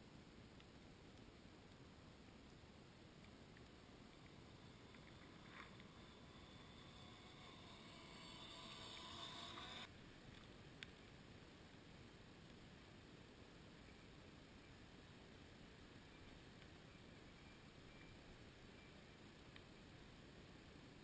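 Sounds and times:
faint hiss: 0.0 - 21.0
toy car electric motor whine: 4.2 - 9.9.

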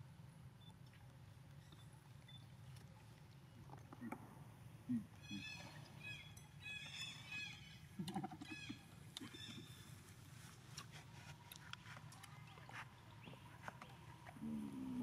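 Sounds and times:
soft clicks and rustles: 9.2 - 14.4.

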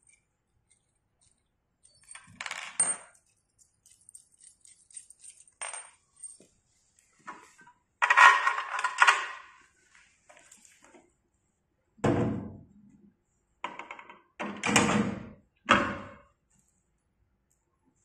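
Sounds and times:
bolts and nuts clinking: 0.0 - 6.5, 7.3 - 9.6.

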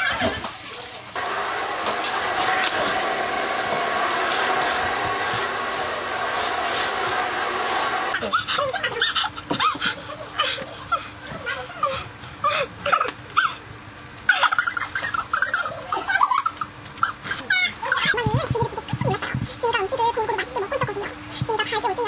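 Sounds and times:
vacuum cleaner running: 0.3 - 9.9.

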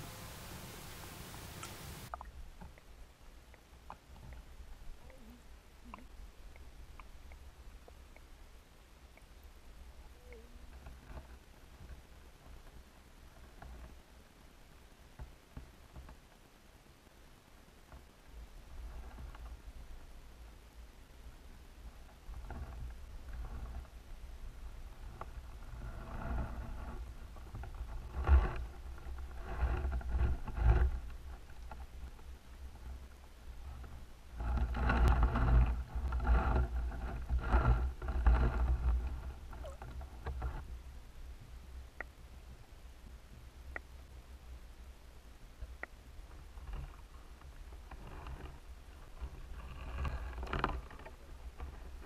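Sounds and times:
water swirling: 0.0 - 2.6
water swishing surges: 0.0 - 13.3
underwater rumble of moving water: 0.0 - 52.0
faint clicks: 1.5 - 8.4, 41.9 - 42.7, 43.6 - 44.1, 45.6 - 52.0.

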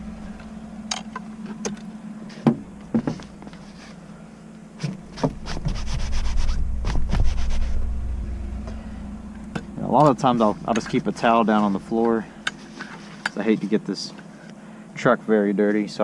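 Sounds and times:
steady low hum: 0.0 - 16.0
rustling: 2.3 - 4.2, 4.8 - 9.7.

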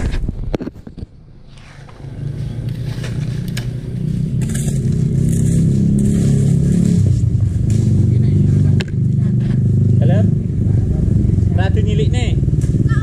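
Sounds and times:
small engine running: 2.1 - 7.0.

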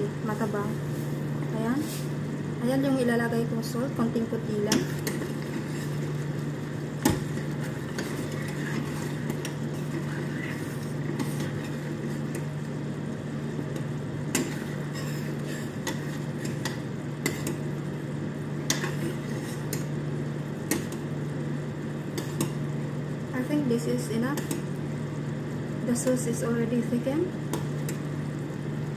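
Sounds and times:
steady low hum: 0.0 - 28.9
spoon stirring thick sauce: 4.9 - 12.5.

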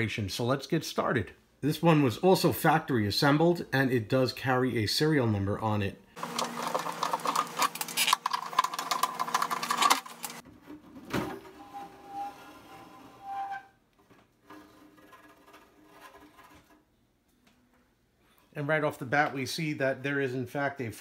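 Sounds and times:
metal chassis scraping: 11.3 - 13.7, 14.4 - 16.9.

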